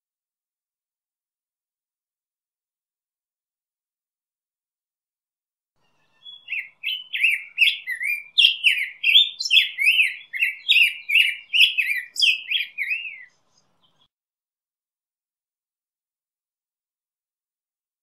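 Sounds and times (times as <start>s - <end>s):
bird singing: 5.8s - 14.1s.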